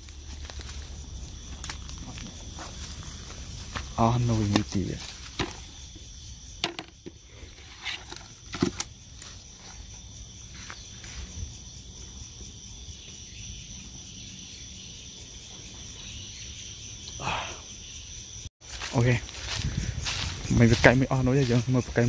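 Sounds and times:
rustling through grass: 0.0s - 5.9s, 18.6s - 21.9s
crickets trilling: 0.0s - 22.0s.

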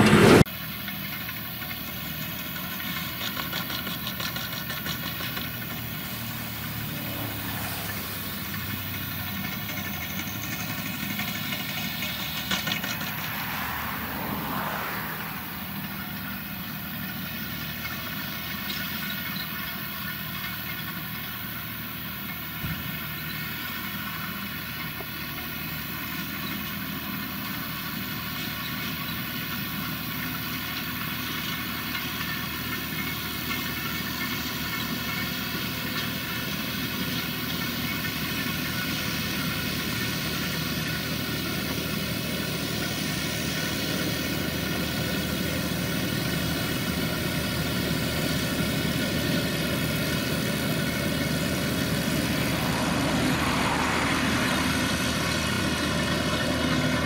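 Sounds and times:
tractor running under load: 0.0s - 57.0s
baler baling grass: 1.7s - 23.8s.

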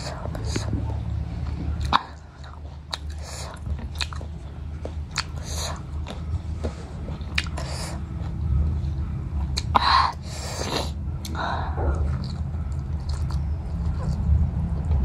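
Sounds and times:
mouth clicks and smacks: 0.0s - 8.4s
person chewing meat: 0.0s - 15.0s
steady low hum: 0.0s - 15.0s.

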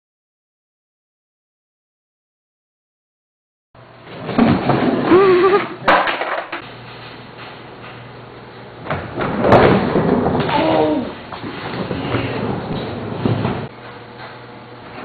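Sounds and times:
skateboard clacks: 5.8s - 6.6s
person calling out: 10.5s - 11.2s.

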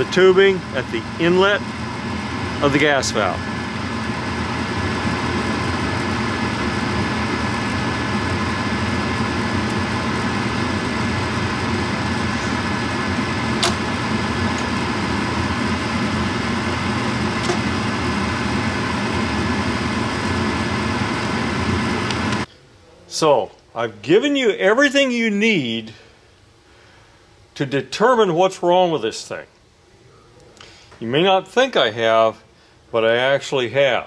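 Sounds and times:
furnace mechanical hum: 0.0s - 34.0s
gas valve clicks: 13.6s - 13.8s.

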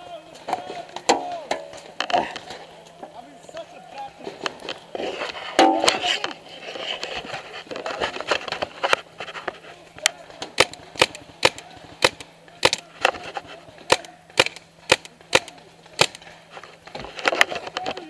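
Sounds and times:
paintball marker popping shots: 10.5s - 12.9s, 13.9s - 16.2s.

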